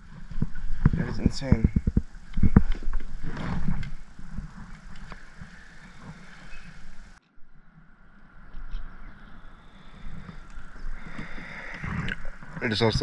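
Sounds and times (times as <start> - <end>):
gear rustling and clicking: 0.0 - 7.2.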